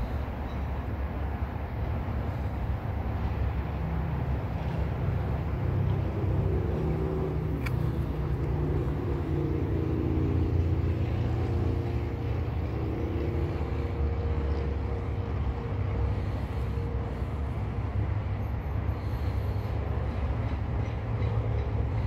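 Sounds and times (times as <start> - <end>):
sharp click: 7.6 - 7.9.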